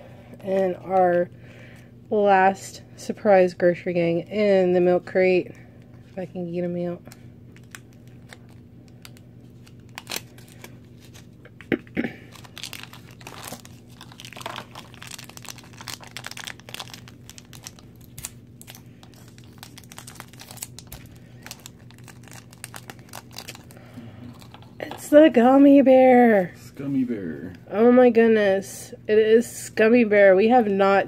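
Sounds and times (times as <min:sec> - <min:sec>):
plastic wrapper crinkling and tearing: 0:07.5 - 0:11.4, 0:12.2 - 0:24.8.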